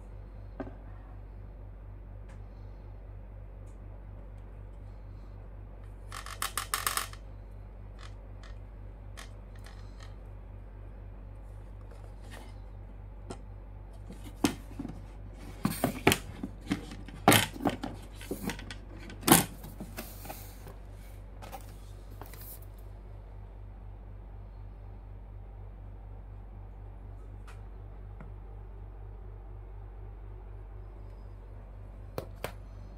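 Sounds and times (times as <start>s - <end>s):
rattle of clicks: 6.1s - 7.2s
motherboard handling noise: 14.0s - 20.8s.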